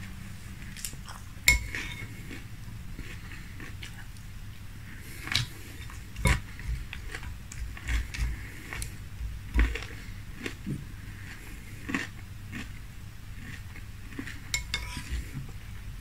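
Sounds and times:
chewing crunchy cereal: 0.6s - 4.3s, 4.9s - 15.4s
spoon clinking in glass bowl: 1.5s - 2.0s, 14.6s - 15.0s.

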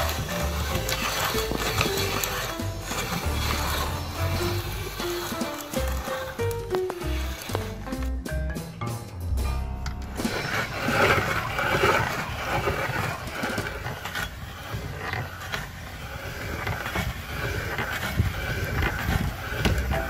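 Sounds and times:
candy squelching through grinder: 0.0s - 8.2s, 10.1s - 20.0s
hand-cranked meat grinder grinding: 0.0s - 8.3s, 10.1s - 20.0s.

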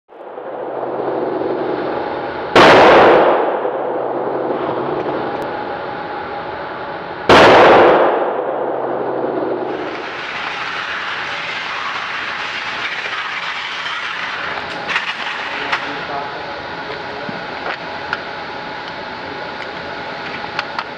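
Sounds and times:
steady rushing noise: 0.1s - 19.3s
low steady hum: 0.1s - 20.9s
loud ringing boom: 0.2s - 6.3s, 7.1s - 16.6s.

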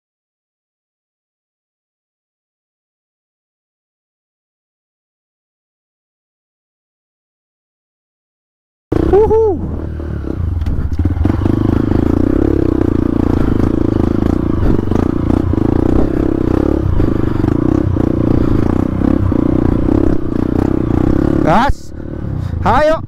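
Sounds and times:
dirt bike engine running: 8.9s - 23.0s.

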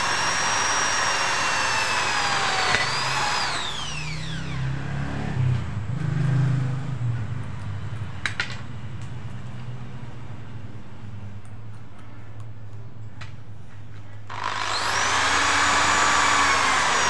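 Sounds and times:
drill bit clicking in chuck: 0.0s - 3.7s
drill motor winding down: 0.0s - 5.0s, 14.3s - 17.0s.

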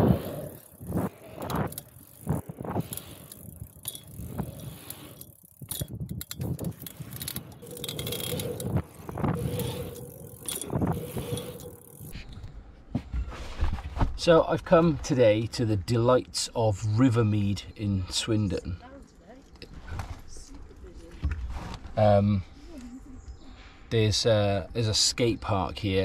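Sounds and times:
bike rattling and clicking: 0.0s - 12.5s
bike tyres on tarmac: 0.0s - 22.8s.

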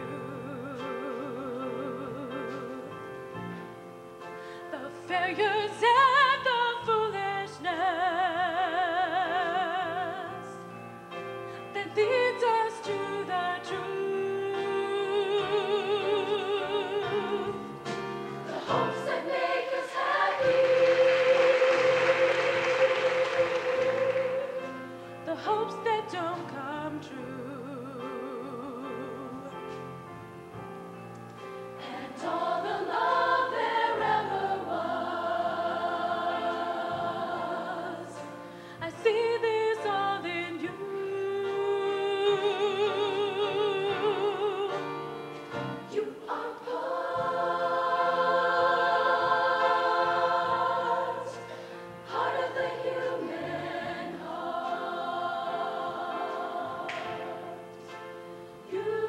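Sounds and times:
choir singing with vibrato: 11.7s - 29.5s, 31.6s - 59.0s.

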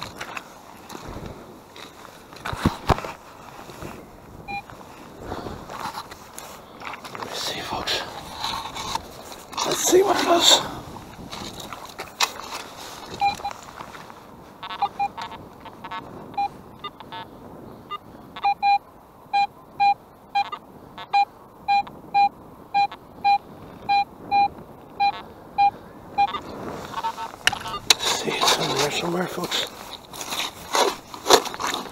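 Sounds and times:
metal detector beeps: 4.5s - 4.7s, 13.2s - 13.6s, 14.6s - 17.2s, 17.9s - 28.0s.

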